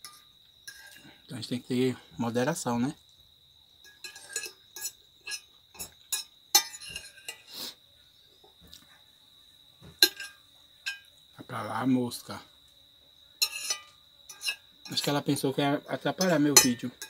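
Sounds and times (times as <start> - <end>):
fork scraping a plate: 0.0 - 1.2, 3.9 - 7.7, 13.4 - 15.2
insect trill: 0.0 - 17.0.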